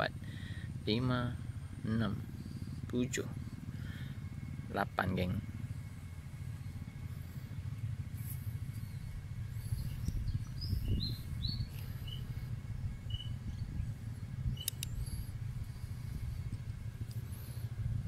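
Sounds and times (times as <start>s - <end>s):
steady low rumble: 0.0s - 18.0s
bird chirps: 8.5s - 15.3s
sharp clicks: 14.5s - 15.2s.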